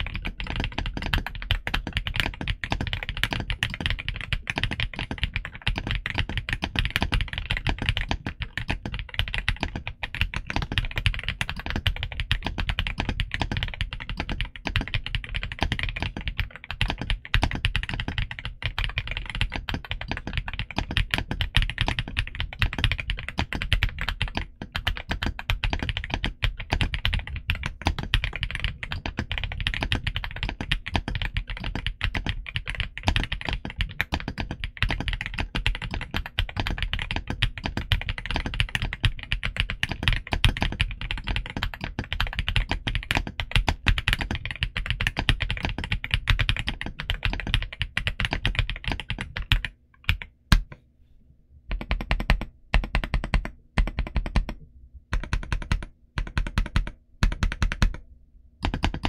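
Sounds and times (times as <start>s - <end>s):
fast typing on mechanical keyboard: 0.0s - 50.7s, 51.7s - 58.0s, 58.6s - 59.0s.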